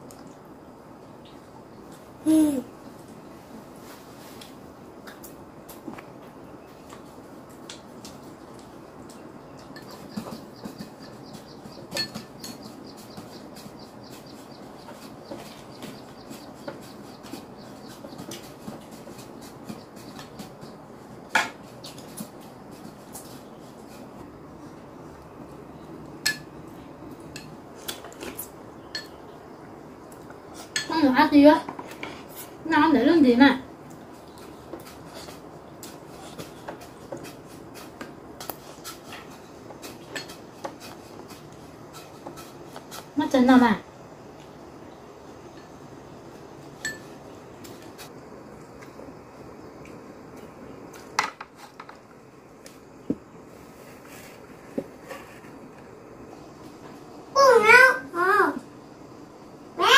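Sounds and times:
dishes and utensils clinking: 9.6 - 13.7, 28.9 - 29.2, 38.8 - 40.9, 46.8 - 47.2
utensils tapping bowls and dishes: 9.6 - 23.3, 28.8 - 29.2, 34.7 - 43.1, 46.8 - 47.2.

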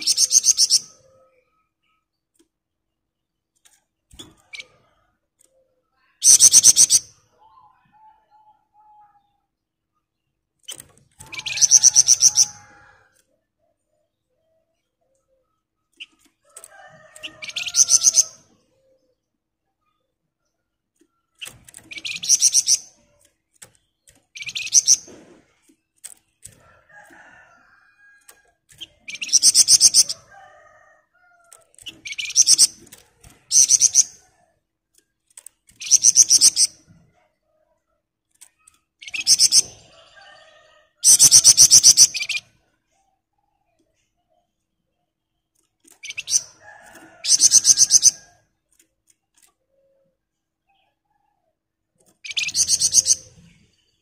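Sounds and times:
songbird rattling trill: 10.7 - 12.6, 21.4 - 23.0, 24.0 - 25.1, 28.7 - 30.2, 31.7 - 34.2, 35.7 - 36.8, 46.0 - 48.2.

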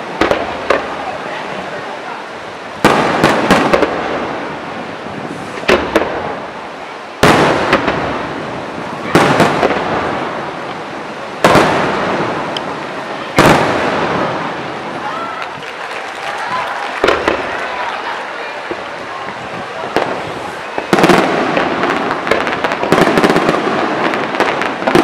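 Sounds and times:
firework crackling: 0.0 - 25.0
firework shells bursting: 16.8 - 17.9.

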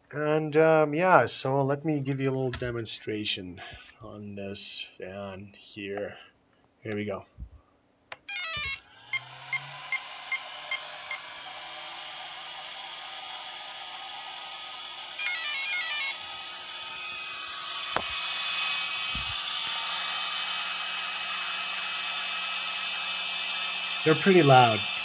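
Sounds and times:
cooling fans whirring: 8.6 - 25.0.

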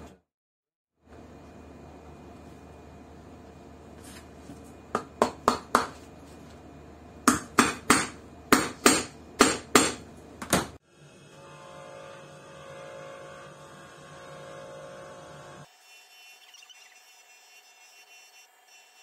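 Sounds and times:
steady low hum: 1.1 - 11.5.

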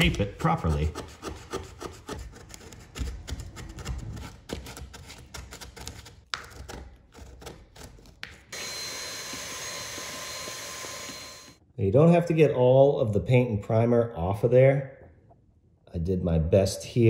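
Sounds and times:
stick vacuum hissing and whining: 8.5 - 11.6.

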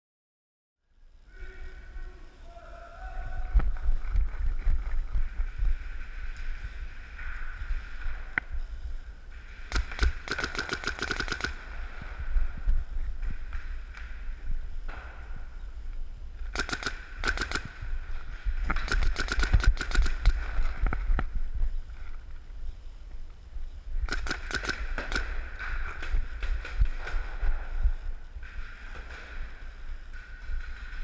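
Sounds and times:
paintball markers firing: 9.6 - 11.8, 16.5 - 17.9, 18.6 - 21.2, 24.1 - 27.4.

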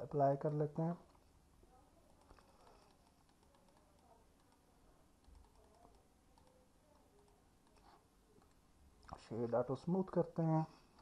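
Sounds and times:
computer mouse and keyboard clicks: 2.1 - 9.2.

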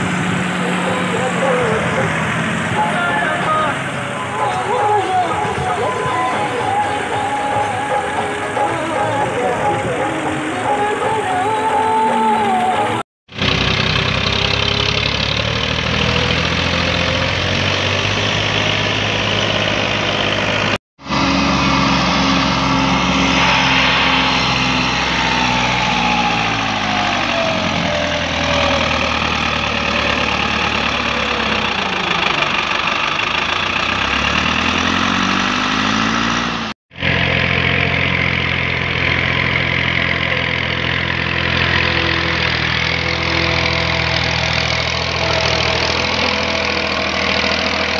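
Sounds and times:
tractor diesel engine under load: 0.0 - 47.9.

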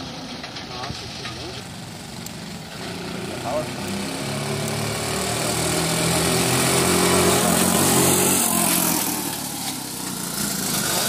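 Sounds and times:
three-wheeler engine passing by: 0.0 - 11.0.

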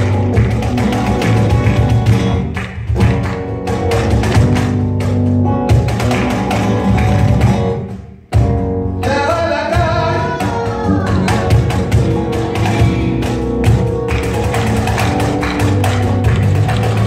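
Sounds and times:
dancer's feet tapping on stage: 0.0 - 7.8, 11.5 - 17.0
flamenco guitar and bass: 0.0 - 17.0
man singing: 8.9 - 13.5.

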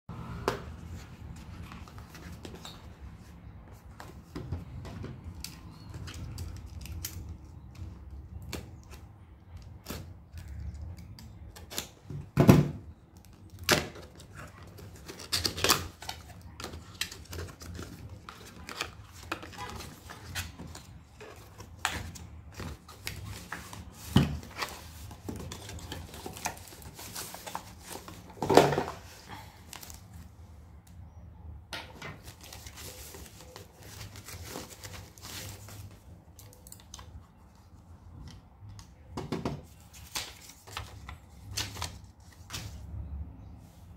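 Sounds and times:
cardboard rustling and scraping: 14.0 - 30.3, 32.0 - 36.2.

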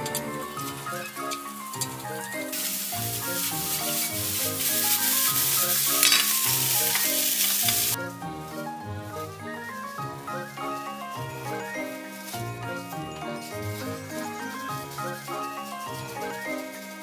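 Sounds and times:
rice sizzling in a frying pan: 0.0 - 8.0, 8.6 - 17.0
spatula stirring in a pan: 0.0 - 8.0.

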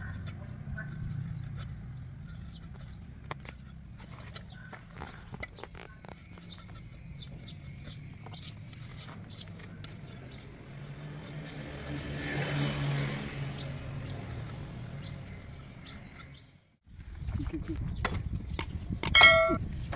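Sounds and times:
vehicle engine passing by: 10.4 - 16.4.

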